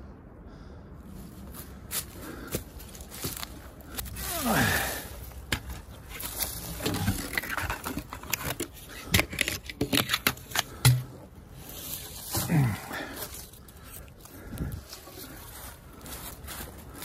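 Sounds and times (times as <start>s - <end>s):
leaves and twigs crackling: 1.2s - 9.0s, 9.9s - 17.0s
twigs snapping: 2.4s - 11.2s
person grunting: 4.2s - 5.1s, 12.4s - 13.2s.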